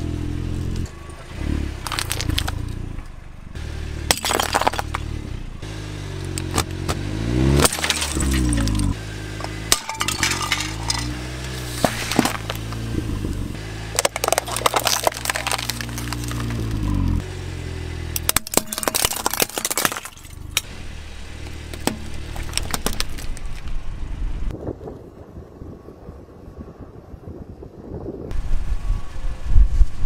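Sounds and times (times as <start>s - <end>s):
car engine running: 0.0s - 24.5s
plastic cups crunching under tyre: 1.8s - 2.6s, 4.1s - 5.0s, 7.6s - 8.9s, 11.7s - 12.7s, 13.9s - 17.0s, 18.2s - 20.6s, 21.4s - 23.8s.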